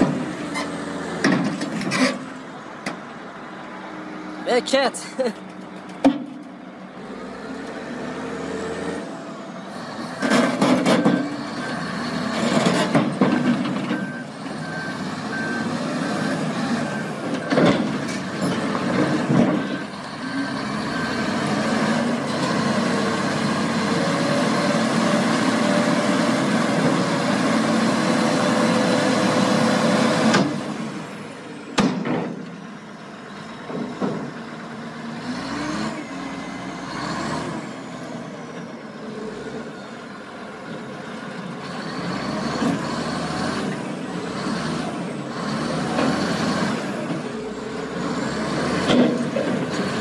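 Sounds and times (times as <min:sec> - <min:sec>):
diesel engines running hard: 0:00.0 - 0:50.0
reversing alarm beeping: 0:13.9 - 0:17.2.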